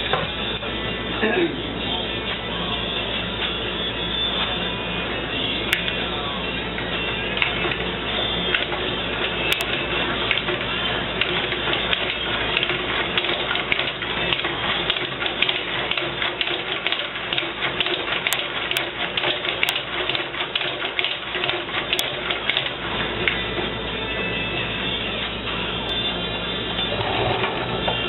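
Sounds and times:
steady noisy air rush: 0.0 - 14.7.

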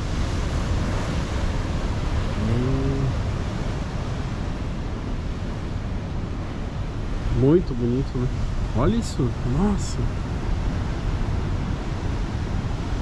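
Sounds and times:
surf washing onto beach: 0.0 - 13.0
person humming: 2.4 - 3.2.

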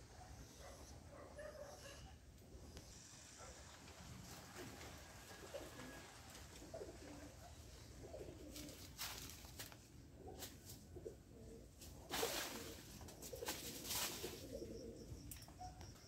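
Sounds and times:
faint dove cooing: 4.4 - 9.3, 10.1 - 15.8.

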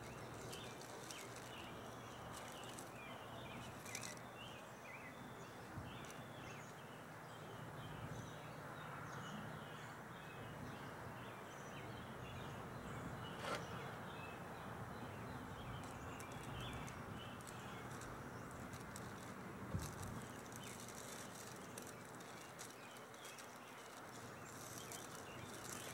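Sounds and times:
small birds chirping: 0.0 - 25.9.

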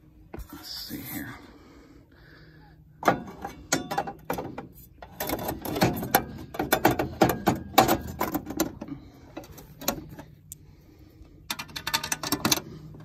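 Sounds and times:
sheet metal clanking and scraping: 3.0 - 10.3.

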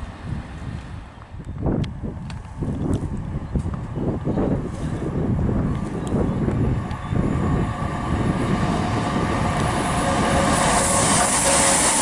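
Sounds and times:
diesel locomotive engine: 0.0 - 12.0
train wheels hissing on rail: 8.4 - 12.0.

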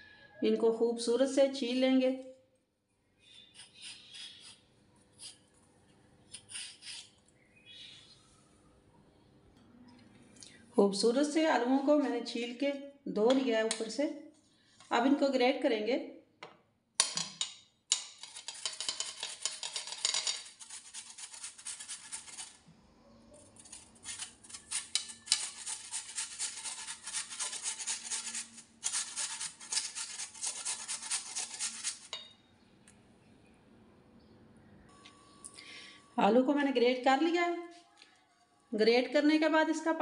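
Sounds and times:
potato grating on metal grater: 3.4 - 5.5, 6.3 - 7.2, 18.0 - 22.6, 23.5 - 32.2.

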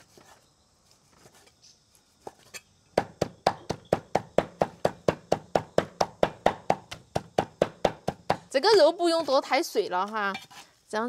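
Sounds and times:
knife chopping meat: 3.0 - 8.5.

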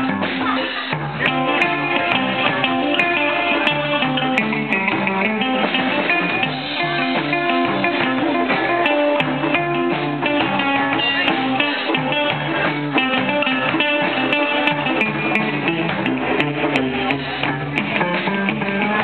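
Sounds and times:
guitar band music: 0.0 - 19.0.

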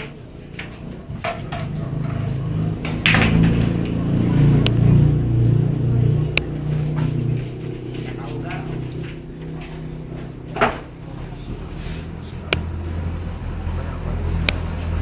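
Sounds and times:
pool balls colliding: 0.0 - 13.1
low background din: 0.0 - 15.0
cue striking ball: 2.8 - 4.0.

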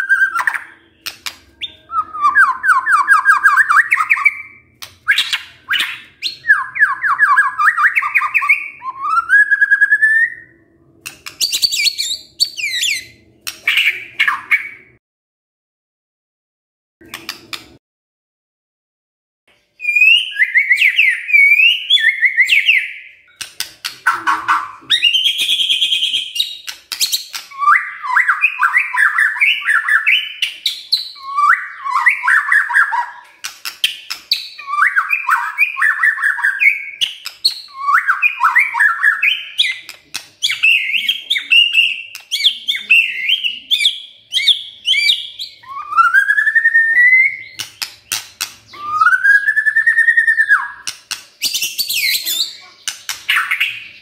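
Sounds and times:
bird rattling song with clicks: 0.4 - 1.7, 23.3 - 27.7, 33.2 - 35.5, 36.4 - 38.8, 39.6 - 40.8, 42.0 - 42.6, 47.4 - 48.8, 50.8 - 53.8.

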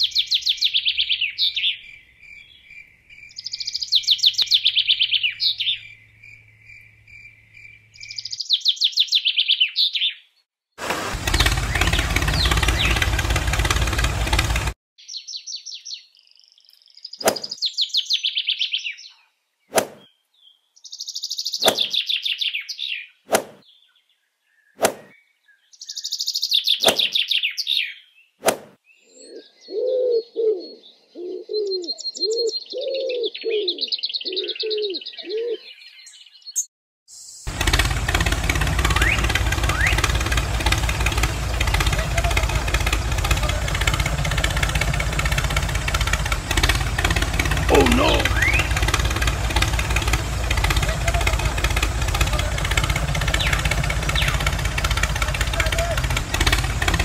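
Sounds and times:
songbird trilling: 0.0 - 10.2, 47.7 - 48.8
sharp clicks: 21.6 - 22.0, 26.8 - 27.1.

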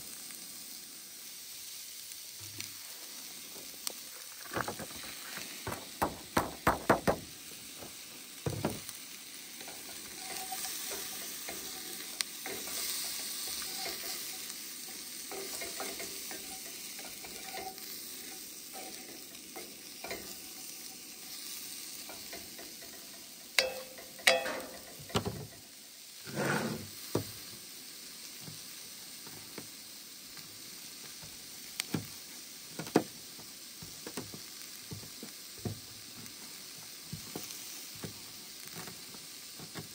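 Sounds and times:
vegetables sizzling in a skillet: 0.0 - 39.9
wooden spatula scraping a pan: 9.6 - 14.5, 15.3 - 19.2, 26.2 - 27.0.

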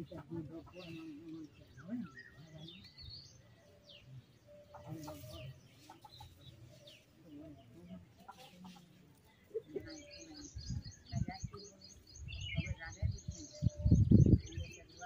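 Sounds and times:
hen clucking: 0.0 - 1.4, 4.6 - 6.9, 7.9 - 10.5
small birds chirping: 0.0 - 15.0.

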